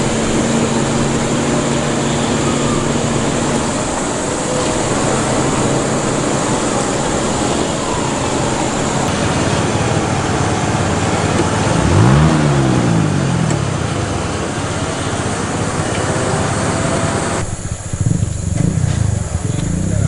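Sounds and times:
loud rushing noise: 0.0s - 20.0s
off-road vehicle engine revving: 0.0s - 20.0s.

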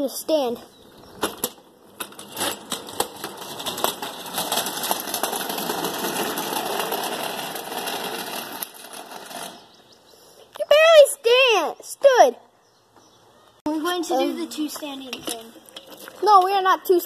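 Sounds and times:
caster wheels rolling over concrete: 0.0s - 10.0s, 13.8s - 17.0s
wheels clicking over joints: 0.3s - 10.6s, 14.0s - 17.0s.

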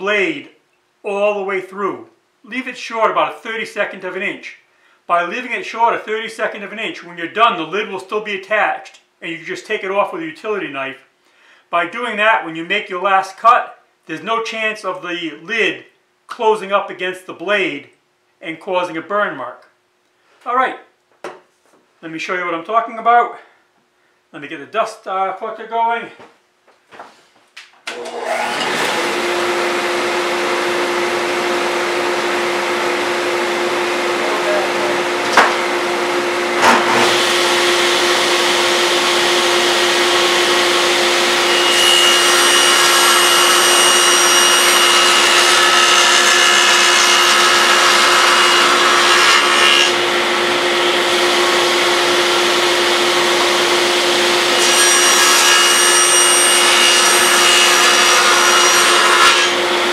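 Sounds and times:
table saw cutting wood: 27.9s - 59.9s
dust collector humming: 28.0s - 55.5s.

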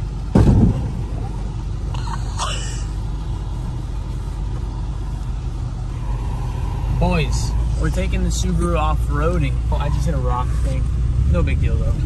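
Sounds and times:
car rumble on dirt track: 0.0s - 12.0s
sudden loud thump: 0.3s - 1.3s.

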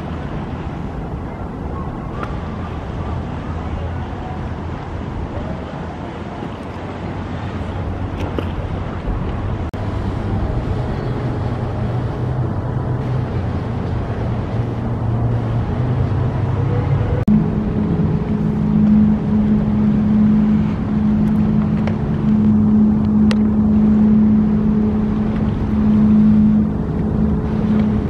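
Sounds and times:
motorboat engines running: 0.0s - 28.0s
outboard motor humming: 0.0s - 28.0s
wind on microphone: 0.0s - 28.0s.

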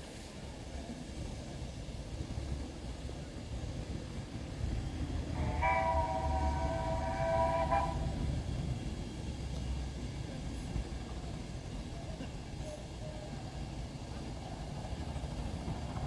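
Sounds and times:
steam locomotive whistle: 5.2s - 8.4s.

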